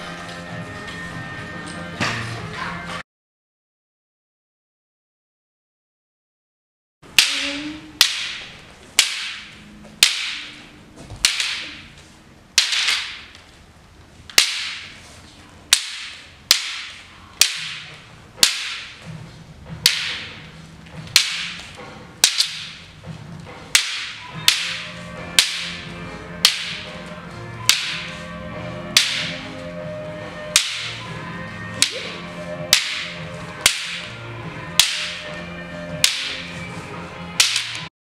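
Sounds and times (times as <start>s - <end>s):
wooden staffs clacking together: 7.1s - 12.0s, 12.6s - 13.5s, 14.3s - 29.8s, 30.4s - 37.9s.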